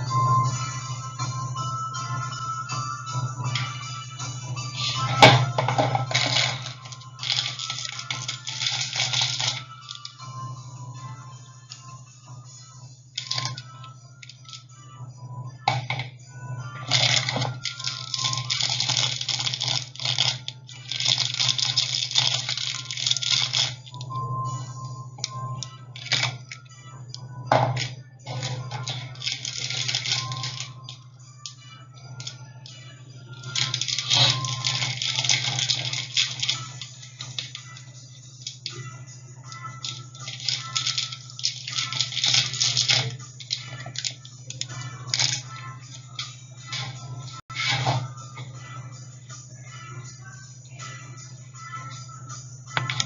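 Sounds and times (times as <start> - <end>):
plastic packaging crinkling: 5.2 - 10.2, 16.9 - 24.0, 28.3 - 31.0, 33.3 - 37.8, 39.4 - 45.4.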